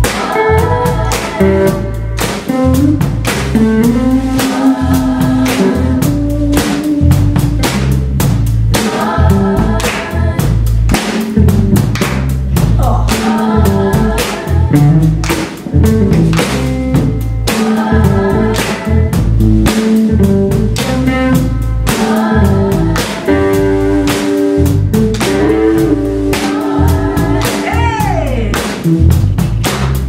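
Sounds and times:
several voices singing: 0:00.0 - 0:03.0, 0:03.8 - 0:07.0, 0:08.7 - 0:11.3, 0:12.7 - 0:16.0, 0:17.1 - 0:19.2, 0:20.9 - 0:28.6
electric guitar: 0:00.0 - 0:29.7
drum kit beat: 0:00.0 - 0:30.0
electric bass: 0:00.0 - 0:30.0.

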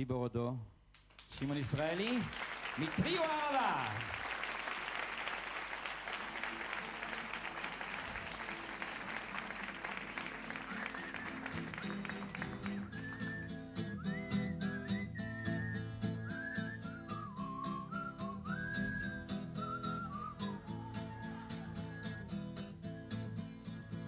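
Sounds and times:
audience applause: 0:01.2 - 0:13.5
acoustic guitar playing: 0:08.1 - 0:24.0
person whistling a melody: 0:10.5 - 0:24.0.

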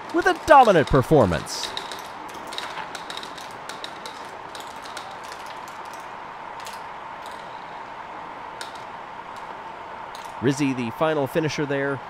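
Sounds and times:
marbles clicking on plastic track: 0:00.0 - 0:07.6
faint steady hum: 0:00.0 - 0:12.0.

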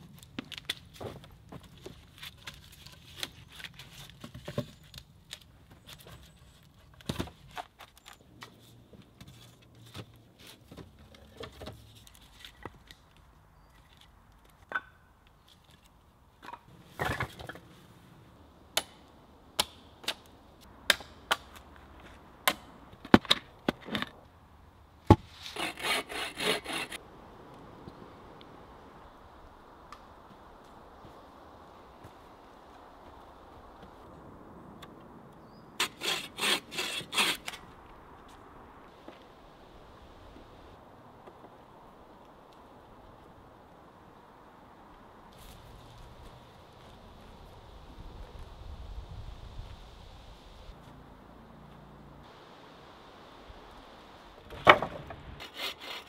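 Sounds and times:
wooden logs knocking together: 0:54.4 - 0:55.3.

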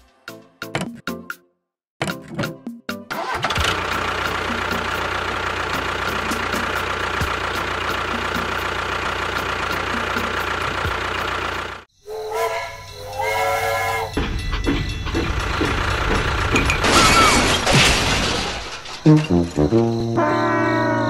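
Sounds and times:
hissing engine running: 0:03.4 - 0:11.9
steam train whistle chord: 0:12.0 - 0:14.2, 0:19.8 - 0:21.0.

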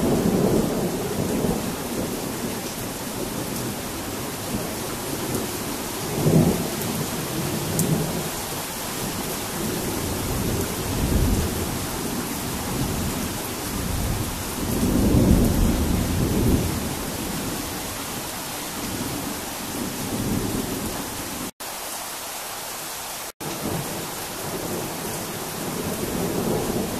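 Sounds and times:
steady rain falling: 0:00.0 - 0:26.9
thunder rumbling: 0:09.1 - 0:17.5.

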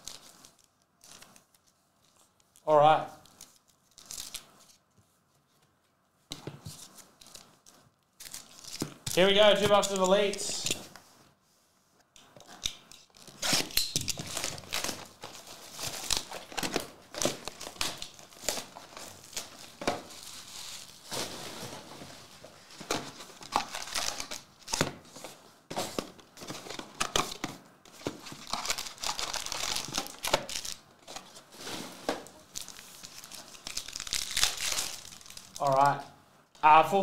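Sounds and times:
foil packs crinkling: 0:13.1 - 0:24.8, 0:26.0 - 0:35.8
cardboard tearing: 0:13.2 - 0:21.4.

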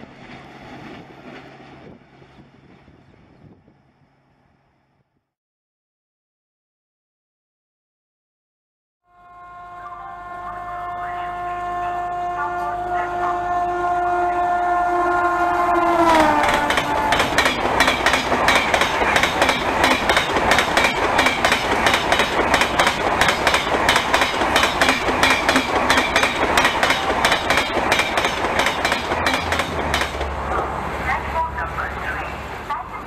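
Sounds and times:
train horn: 0:09.0 - 0:17.5
train wheels clattering over rail joints: 0:16.4 - 0:30.8.

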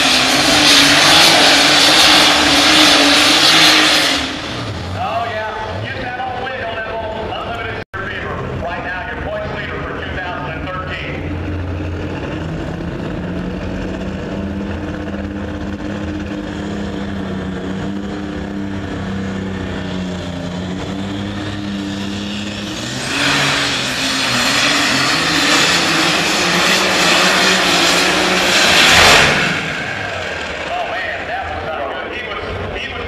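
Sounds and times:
tractor engine idling: 0:29.6 - 0:33.0.

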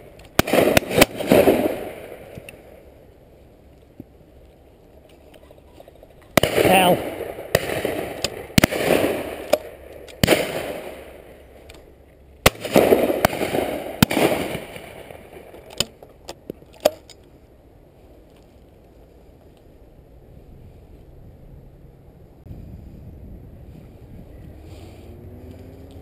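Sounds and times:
distant shotgun shots: 0:00.0 - 0:02.6, 0:06.3 - 0:11.4, 0:12.4 - 0:15.7
shotgun shots with echo: 0:00.4 - 0:02.3, 0:06.4 - 0:11.2, 0:12.4 - 0:15.5.

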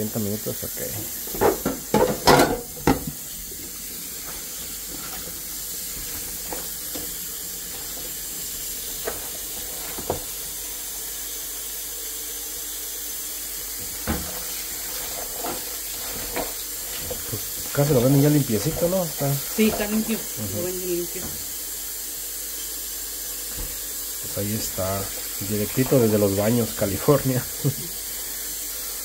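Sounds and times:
faucet running into a pot: 0:00.0 - 0:29.0
metal pot knocking in sink: 0:01.3 - 0:03.2.

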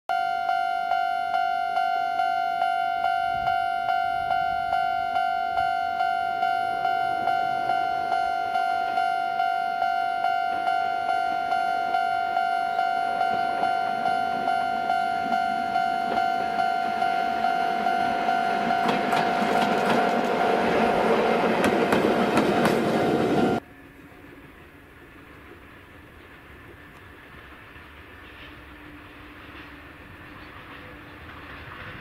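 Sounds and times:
electronic crossing bell dinging: 0:00.1 - 0:21.1, 0:23.1 - 0:23.6
electric locomotive rumble: 0:00.1 - 0:32.0.

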